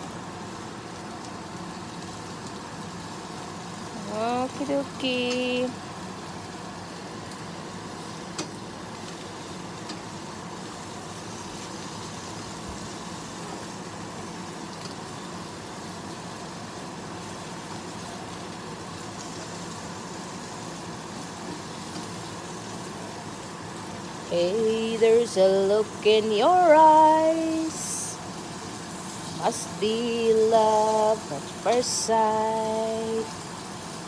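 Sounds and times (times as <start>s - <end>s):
vegetables sizzling in frying pan: 0.0s - 34.0s.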